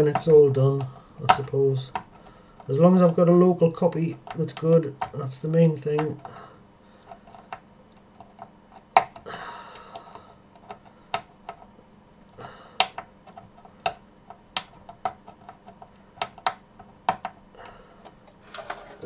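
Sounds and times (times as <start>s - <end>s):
circuit board clicks and taps: 12.8s - 17.4s.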